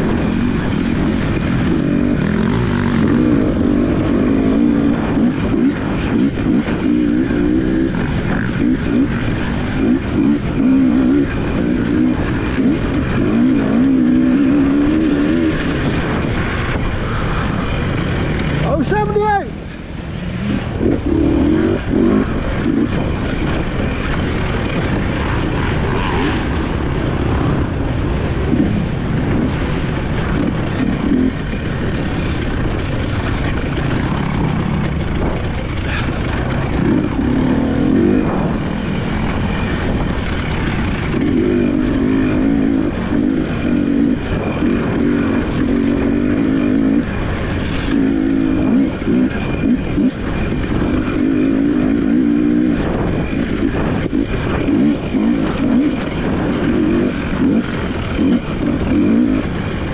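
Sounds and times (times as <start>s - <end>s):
dirt bike engines revving: 0.0s - 59.9s.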